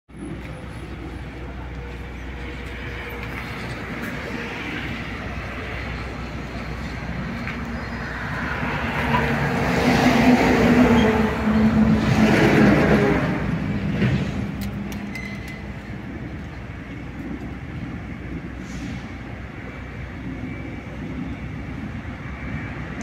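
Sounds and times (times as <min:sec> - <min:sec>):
steady traffic noise: 0:00.1 - 0:23.0
vehicle passing by: 0:02.5 - 0:14.6.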